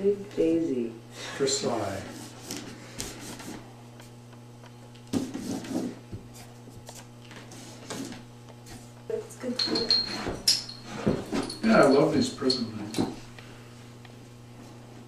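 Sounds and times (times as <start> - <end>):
brush scraping on paper: 1.9 - 3.6, 5.2 - 8.9.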